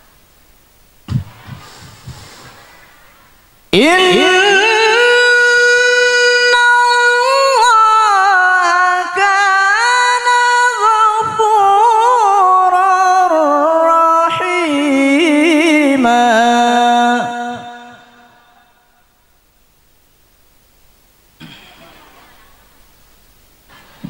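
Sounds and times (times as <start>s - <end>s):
man chanting melodic recitation: 3.7s - 18.6s.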